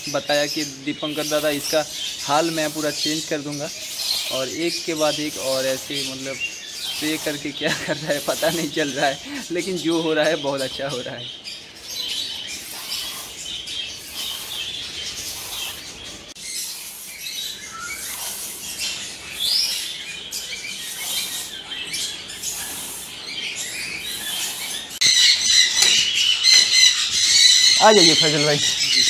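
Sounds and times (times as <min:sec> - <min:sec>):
small birds chirping: 0:00.0 - 0:29.0.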